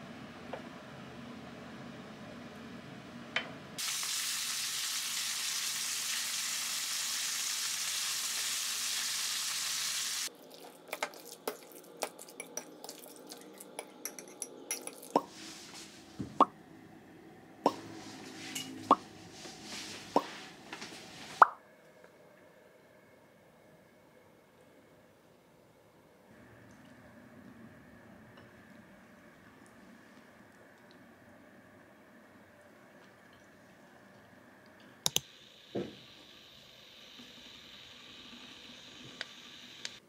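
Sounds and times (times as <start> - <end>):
food sizzling in hot oil: 3.8 - 10.3
spoon tapping glass bowl: 13.8 - 15.0.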